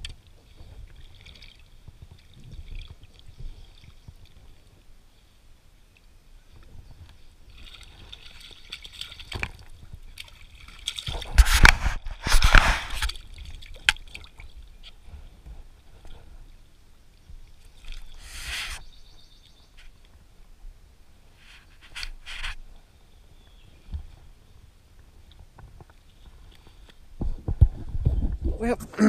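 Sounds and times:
lake water splashing: 0.0s - 5.4s, 7.2s - 20.4s.

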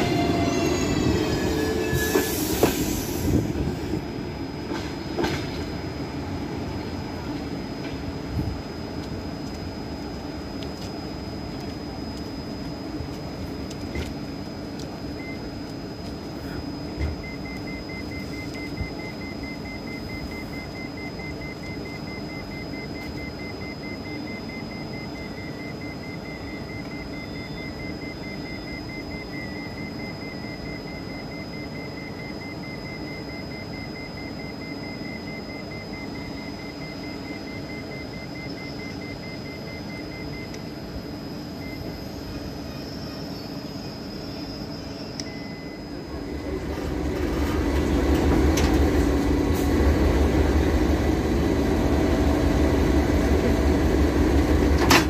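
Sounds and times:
thin high whine: 0.0s - 5.9s, 35.3s - 55.0s
electric train hum: 0.0s - 55.0s.

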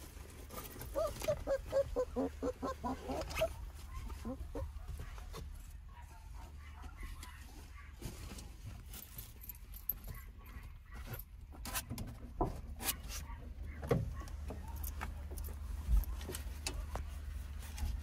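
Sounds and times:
harness buckles clicking and rustling: 0.0s - 4.4s, 13.8s - 18.0s
dogs calling: 0.6s - 5.3s.

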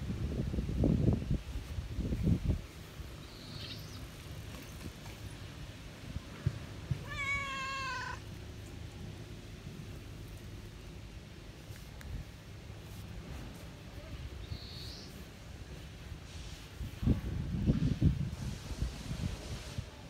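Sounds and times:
cat meowing: 7.0s - 8.2s.

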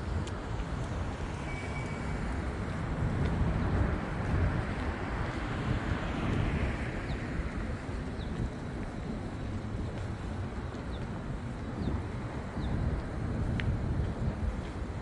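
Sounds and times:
traffic rush: 0.0s - 15.0s
car passing: 0.8s - 10.6s.

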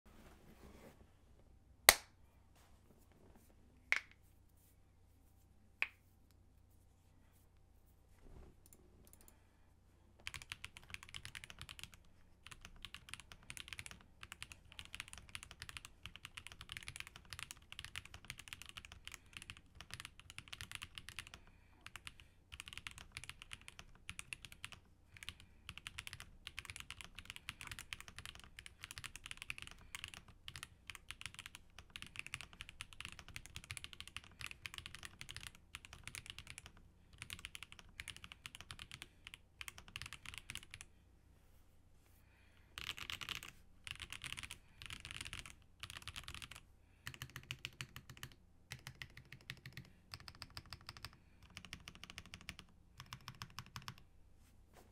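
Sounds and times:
fast typing on mechanical keyboard: 10.2s - 40.9s, 42.8s - 54.0s.

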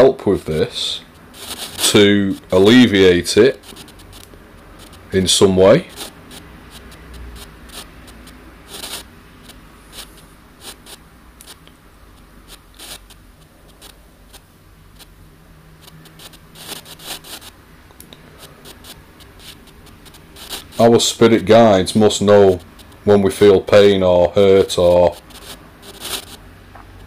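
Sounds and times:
radio static hiss and crackles: 0.0s - 27.0s.

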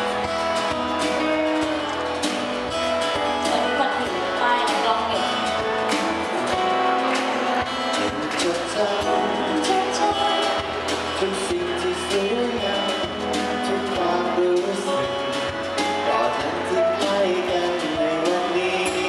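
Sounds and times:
acoustic guitar: 0.0s - 19.0s
man singing into microphone: 8.0s - 19.0s.

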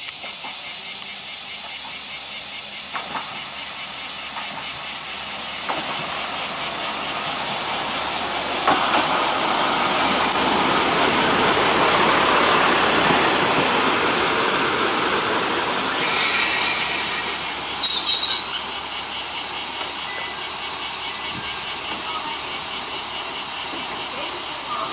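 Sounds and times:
train engine and wheels on rails: 0.0s - 24.9s
high brake squeal: 15.7s - 19.2s, 20.0s - 22.3s.

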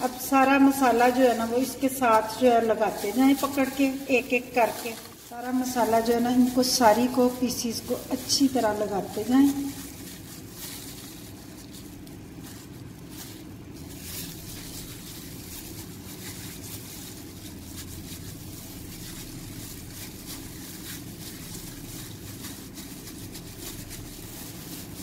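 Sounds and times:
plastic glove crinkling and rustling: 0.0s - 25.0s.

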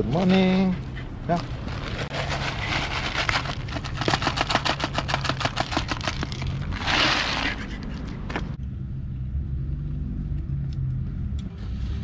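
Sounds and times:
dog crunching dry kibble: 1.3s - 8.3s
rustling: 1.4s - 8.6s.

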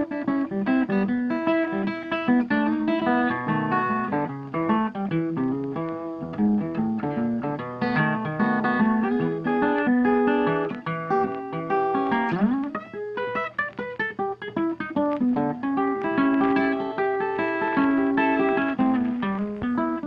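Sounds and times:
plucked guitar music: 0.0s - 20.0s.

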